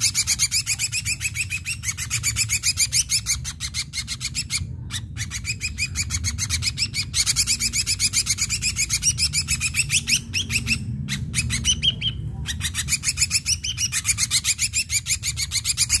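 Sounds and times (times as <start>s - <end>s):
bird singing chattering notes: 0.0s - 16.0s.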